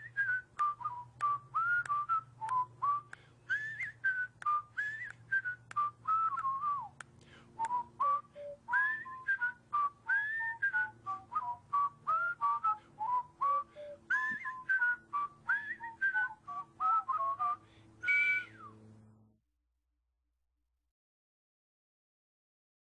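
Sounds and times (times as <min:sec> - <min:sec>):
whistled tune: 0:00.0 - 0:07.0, 0:07.6 - 0:18.8.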